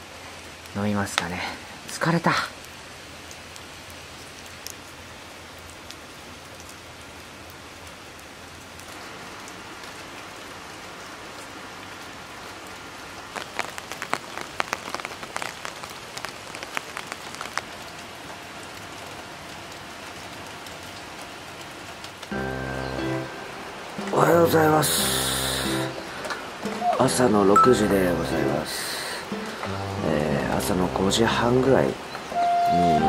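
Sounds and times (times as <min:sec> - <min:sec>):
steady rain falling: 0:00.0 - 0:33.0
sharp drip ticks: 0:13.3 - 0:18.1.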